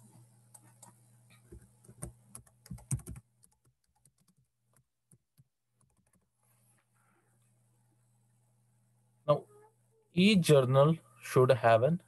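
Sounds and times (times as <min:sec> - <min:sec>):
typing on computer keyboard: 0:01.6 - 0:04.5, 0:05.8 - 0:06.3.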